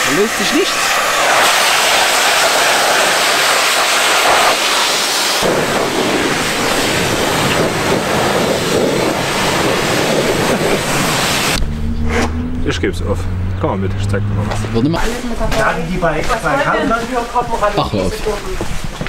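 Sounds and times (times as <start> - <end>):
pressure washer jet hissing: 0.0 - 11.6.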